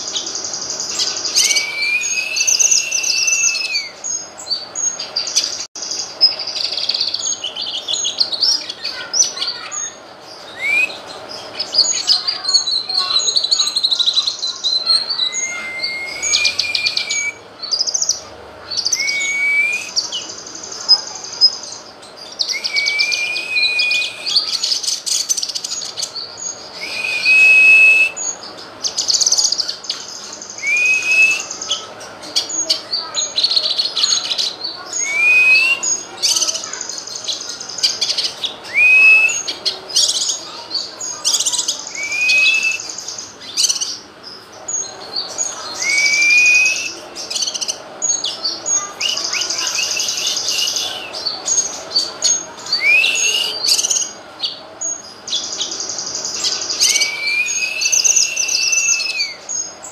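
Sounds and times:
bird singing chirps and trills: 0:00.0 - 0:59.9
long rising bird whistle: 0:01.3 - 0:04.0, 0:10.5 - 0:11.0, 0:15.2 - 0:17.4, 0:18.8 - 0:20.0, 0:22.4 - 0:24.5, 0:26.8 - 0:28.4, 0:30.6 - 0:31.6, 0:35.0 - 0:36.0, 0:38.7 - 0:39.5, 0:41.9 - 0:43.0, 0:45.8 - 0:47.4, 0:49.0 - 0:51.2, 0:52.7 - 0:53.9, 0:56.8 - 0:59.6.

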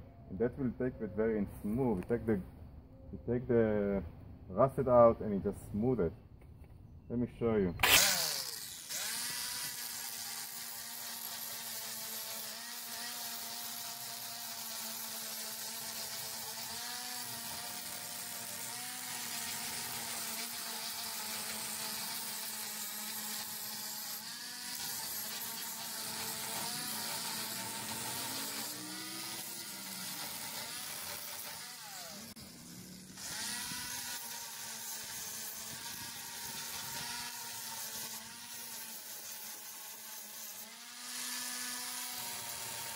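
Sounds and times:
angle grinder grinding metal: 0:07.7 - 0:42.9.

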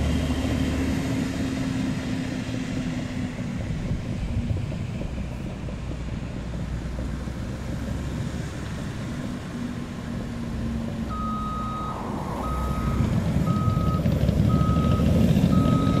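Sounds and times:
dozer diesel engine running: 0:00.0 - 0:16.0
reverse alarm beeping: 0:11.1 - 0:16.0.

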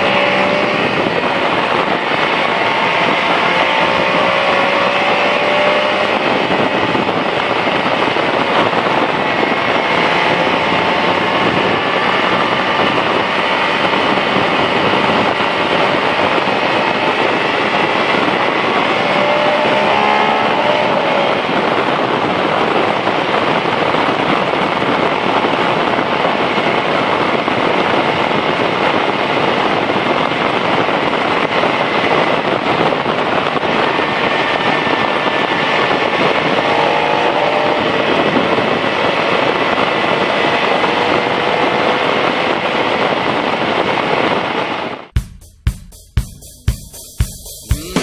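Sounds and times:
motorcycle engine: 0:00.0 - 0:43.0, 0:44.9 - 0:48.0
wind noise on microphone: 0:00.0 - 0:48.0
drum-kit music: 0:45.2 - 0:48.0.

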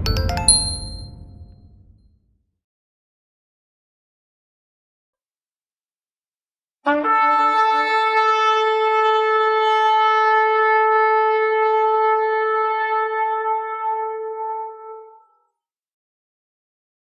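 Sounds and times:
long horn blast: 0:06.9 - 0:15.2.

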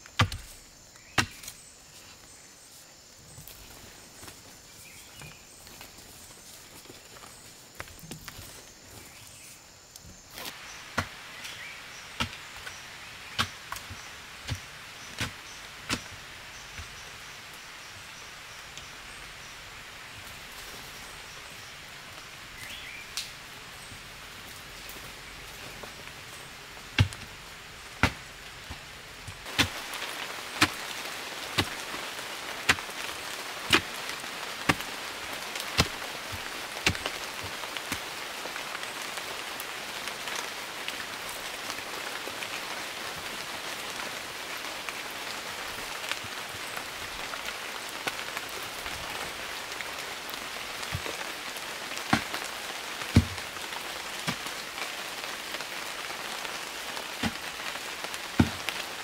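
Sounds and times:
rain hiss: 0:00.0 - 0:59.0
digging tool chopping earth: 0:00.2 - 0:01.6, 0:12.2 - 0:12.4, 0:13.3 - 0:16.2, 0:27.0 - 0:27.3, 0:28.0 - 0:30.0, 0:30.6 - 0:30.9, 0:31.6 - 0:31.8, 0:33.7 - 0:34.0, 0:34.7 - 0:35.0, 0:35.6 - 0:38.0, 0:52.1 - 0:52.4, 0:53.1 - 0:53.4, 0:57.2 - 0:57.5, 0:58.4 - 0:58.7.

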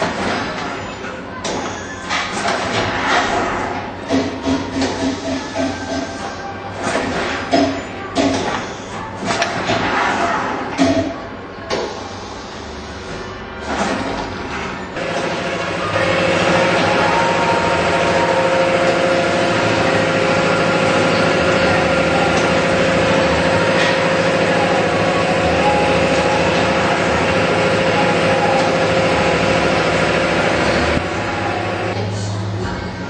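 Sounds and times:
conveyor dryer humming: 0:00.0 - 0:33.0.

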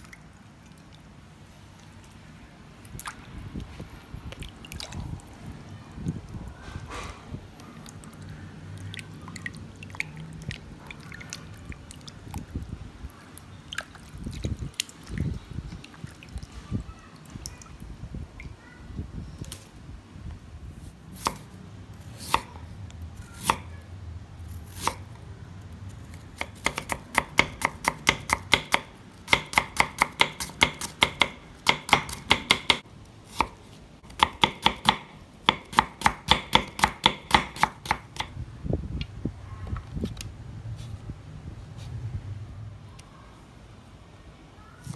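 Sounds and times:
water splashing in metal bowl: 0:07.8 - 0:12.5
knife chopping on wooden board: 0:26.4 - 0:38.3.

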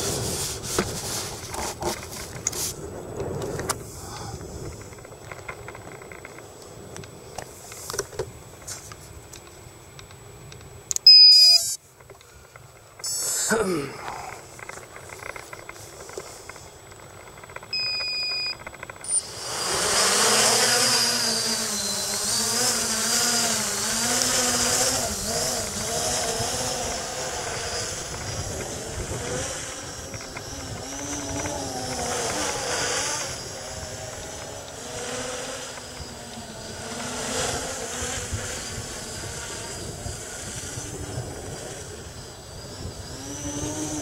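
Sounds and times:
drone propellers buzzing whine: 0:00.0 - 0:44.0
short high electronic beeps: 0:11.0 - 0:11.8, 0:13.0 - 0:13.4.

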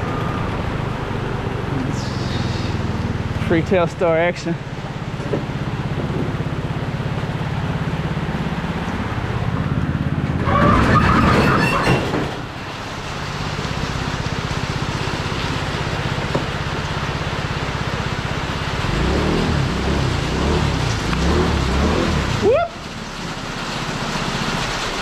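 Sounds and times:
high whine: 0:00.0 - 0:05.0
vehicle engine running: 0:00.0 - 0:10.6, 0:12.4 - 0:25.0
road and rain noise: 0:00.0 - 0:25.0.

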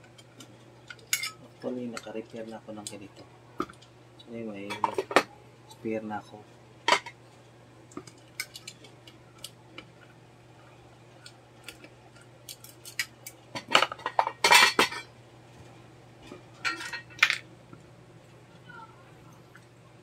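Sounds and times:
steady low hum: 0:00.0 - 0:20.0
metal tools clinking and scraping: 0:00.9 - 0:02.5, 0:16.6 - 0:17.4.

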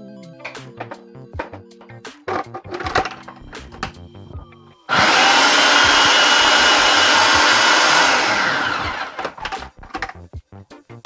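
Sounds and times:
food processor motor running: 0:04.9 - 0:09.6.

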